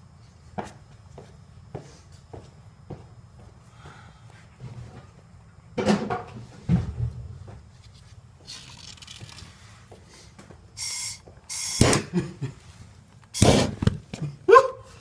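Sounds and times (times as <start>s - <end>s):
gas hissing: 10.2s - 12.2s, 13.3s - 14.0s
torch igniter clicks: 10.8s - 12.1s.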